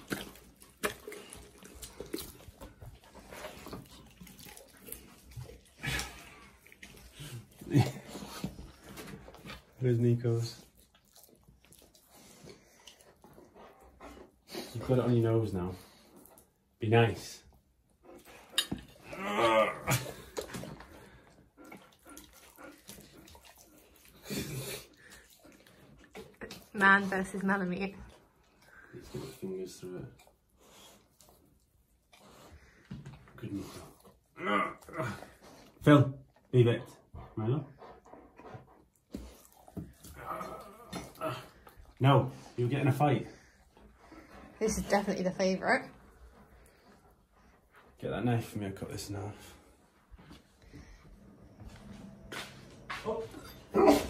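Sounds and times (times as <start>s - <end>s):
dog chewing raw meat: 0.0s - 9.8s, 20.1s - 29.4s, 38.8s - 47.2s.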